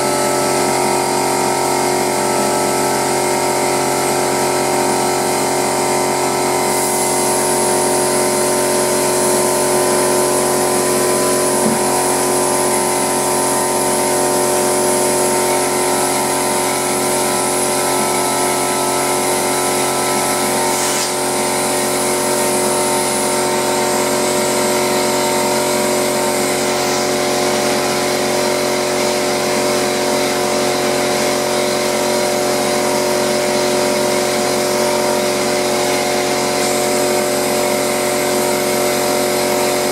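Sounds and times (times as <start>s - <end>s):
air compressor running: 0.0s - 39.9s
spray gun air hissing: 6.7s - 12.9s, 16.7s - 23.3s.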